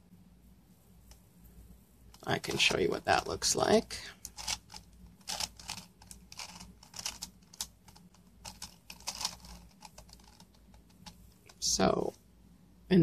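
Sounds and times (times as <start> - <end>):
puzzle cube plastic clicks: 4.2 - 11.6.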